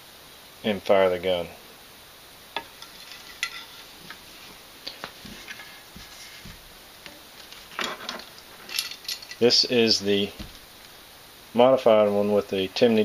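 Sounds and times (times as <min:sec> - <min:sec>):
metal rifle parts clicking: 0:02.6 - 0:04.2, 0:07.8 - 0:09.4.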